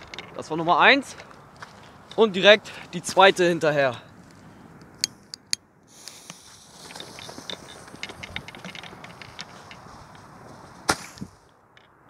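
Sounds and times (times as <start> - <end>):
fuse crackles: 4.8 - 11.6
firework fuse hissing: 5.9 - 6.8.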